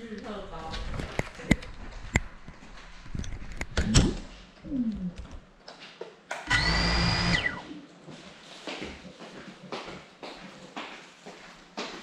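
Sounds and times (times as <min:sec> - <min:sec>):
drone motors whirring: 0:06.5 - 0:07.6.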